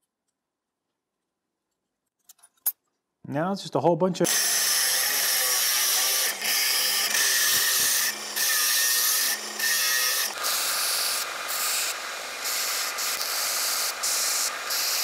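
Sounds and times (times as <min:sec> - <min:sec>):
angle grinder cutting steel: 0:04.2 - 0:15.0
belt grinder grinding steel: 0:04.3 - 0:15.0.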